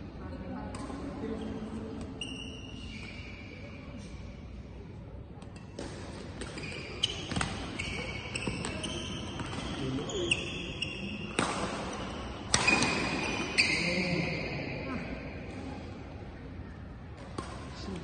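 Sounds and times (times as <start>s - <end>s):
shoes squeaking on court: 1.4s - 4.2s, 6.4s - 14.1s
racket striking shuttlecock: 11.3s - 13.6s, 17.2s - 17.7s.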